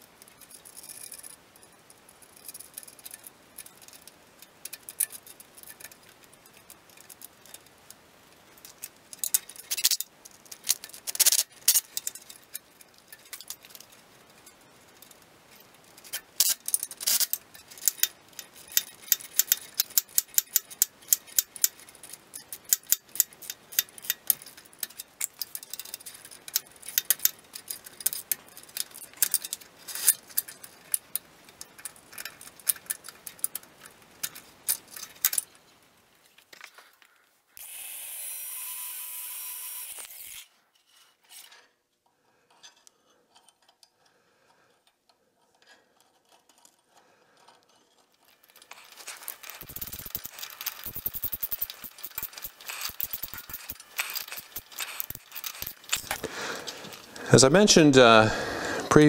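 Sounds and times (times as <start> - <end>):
metal hardware clinking: 48.3 - 57.2.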